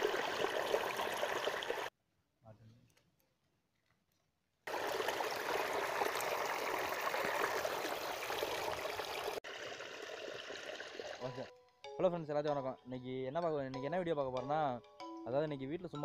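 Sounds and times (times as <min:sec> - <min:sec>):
water pouring and splashing: 0:00.0 - 0:01.9, 0:04.7 - 0:11.5.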